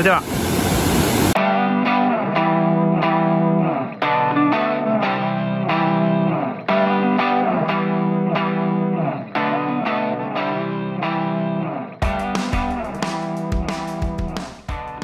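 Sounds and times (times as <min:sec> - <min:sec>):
effects-laden guitar phrase: 0:01.4 - 0:15.0.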